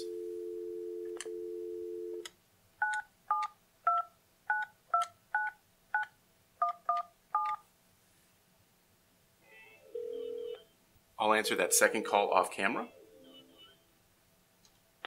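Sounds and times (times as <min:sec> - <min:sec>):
phone dial tone: 0:00.0 - 0:02.2, 0:10.0 - 0:10.6.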